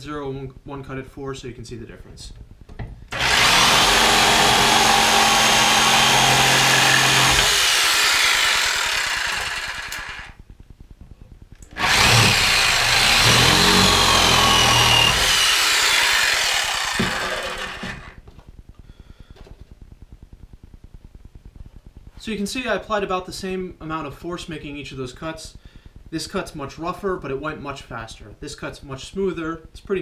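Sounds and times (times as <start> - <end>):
jigsaw cutting wood: 3.1 - 10.4, 11.7 - 18.2
saw spinning down whine: 3.1 - 10.4, 11.7 - 18.2.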